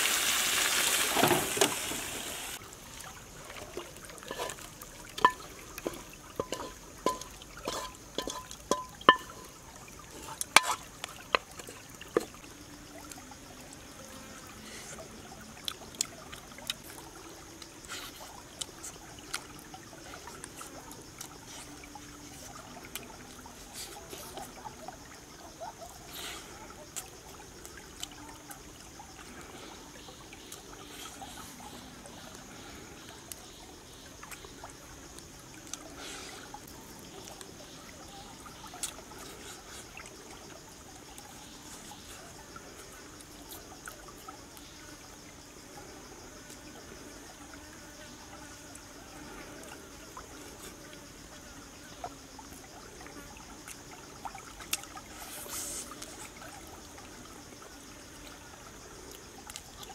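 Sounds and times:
stream water trickling: 0.0s - 59.9s
person eating with hands: 4.2s - 9.5s.

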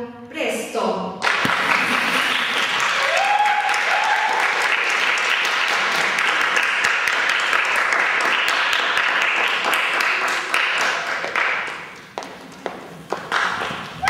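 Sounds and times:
audience applauding: 1.2s - 14.0s
person whooping: 2.8s - 4.5s.

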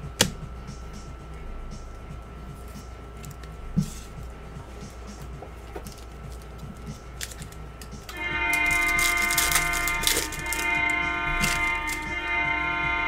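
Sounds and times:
sustained chord: 0.0s - 13.0s
foil pack crinkling and tearing: 7.2s - 12.1s.

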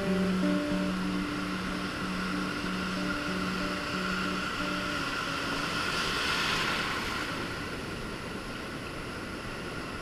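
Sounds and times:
ocean surf washing: 0.0s - 10.0s.

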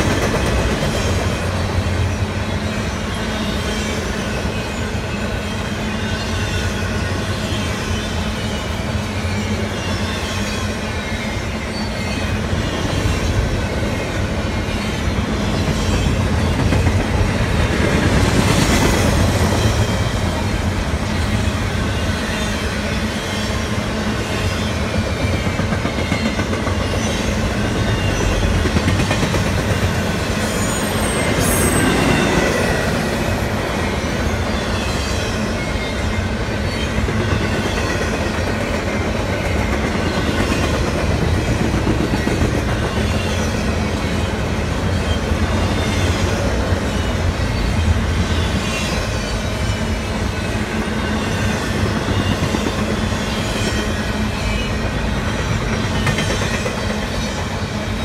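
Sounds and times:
steel wheels rumbling on rails: 0.0s - 58.0s.

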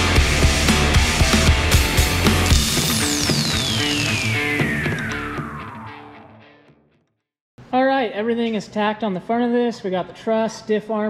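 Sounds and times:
music with fast drum beat: 0.0s - 5.1s.

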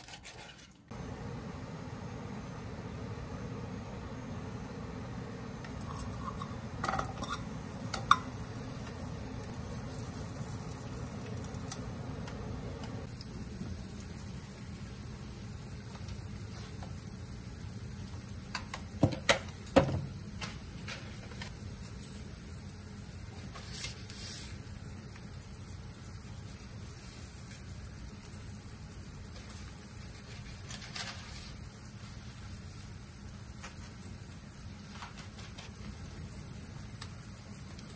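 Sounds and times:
steady low hum: 0.9s - 18.4s
induction hob hum: 0.9s - 37.9s.

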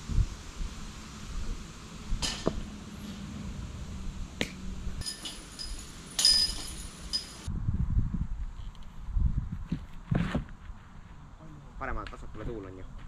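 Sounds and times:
metal chains clinking: 5.0s - 7.5s.

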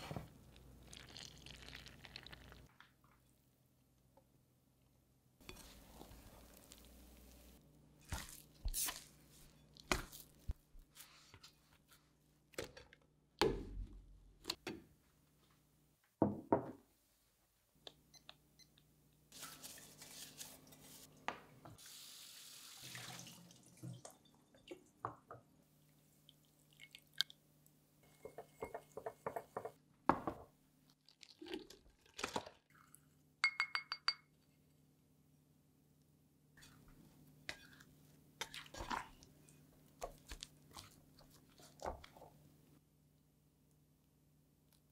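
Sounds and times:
spoon clinking on glass bowl: 33.4s - 34.3s.

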